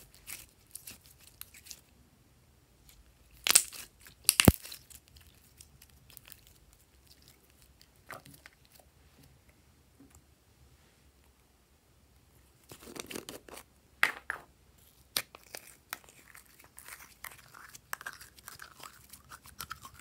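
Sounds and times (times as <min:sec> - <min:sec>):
slime crackling and popping: 0:03.3 - 0:07.3
sharp slime snap: 0:03.4 - 0:04.8.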